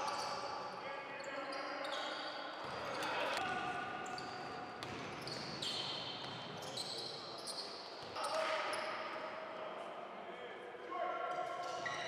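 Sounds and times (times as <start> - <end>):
voices echoing in hall: 0.0 - 12.0
sneakers squeaking on wooden court: 4.0 - 8.9.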